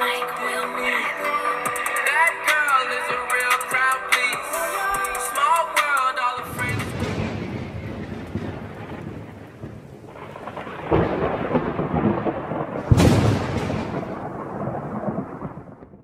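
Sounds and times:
thunder cracking: 1.7 - 16.0
thunder rumbling: 4.9 - 16.0.

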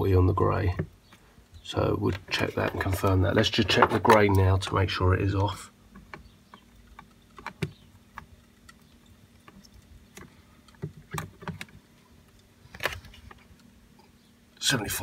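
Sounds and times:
metal probes tapping terminals: 5.3 - 12.5.

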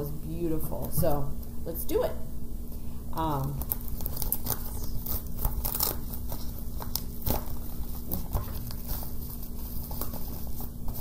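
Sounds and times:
padded envelope rustling: 3.6 - 11.0.

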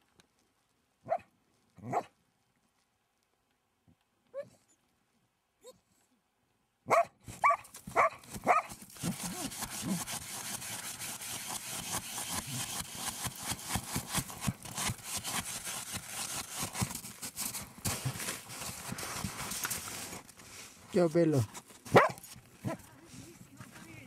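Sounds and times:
dog barking: 1.0 - 2.1, 6.9 - 8.7, 21.9 - 22.8
dog digging in snow: 7.4 - 20.7.

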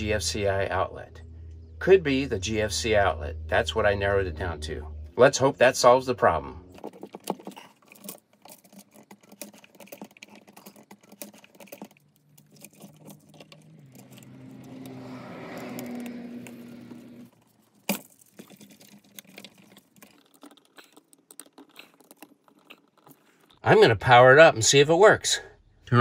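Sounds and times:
low hum: 0.0 - 7.3, 12.2 - 17.4.

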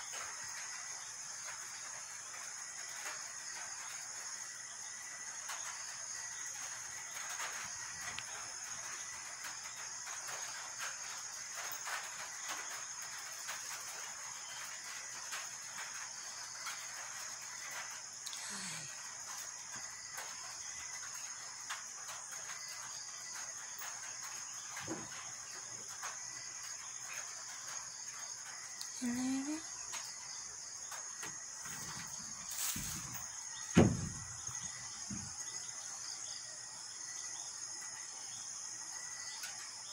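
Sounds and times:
night insects chirring: 0.0 - 39.9
soft bumps: 31.2 - 35.4
sharp knock: 33.8 - 34.2.

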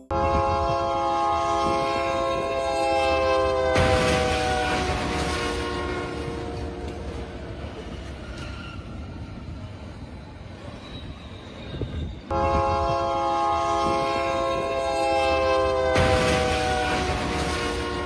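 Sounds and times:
locomotive horn blaring: 0.0 - 7.4, 12.3 - 18.0
freight train rumbling past: 0.0 - 18.0.

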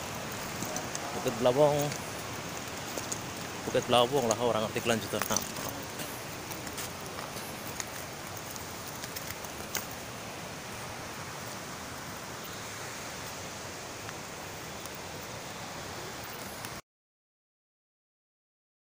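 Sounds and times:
outdoor rushing hiss: 0.0 - 16.8
faint clicks: 5.1 - 10.0.

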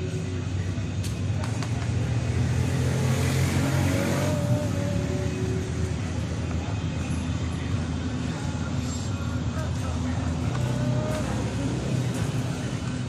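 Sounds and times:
low motor rumble: 0.0 - 13.0.

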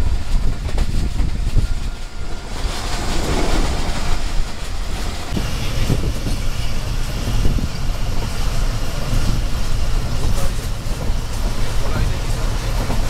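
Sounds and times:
rail joint clicks: 0.0 - 13.0
train wheels rumbling on rail: 0.0 - 13.0
rush of air: 2.2 - 6.3.

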